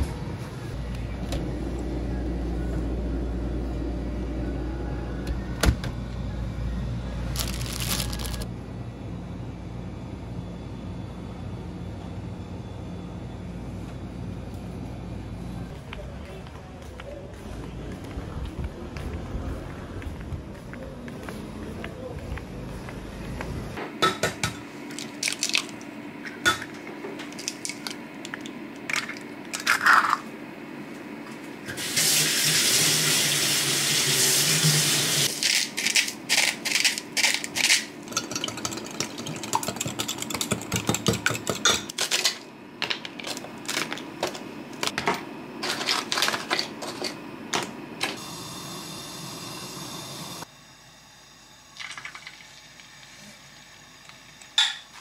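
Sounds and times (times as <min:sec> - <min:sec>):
running tap water: 0:31.8 - 0:35.3.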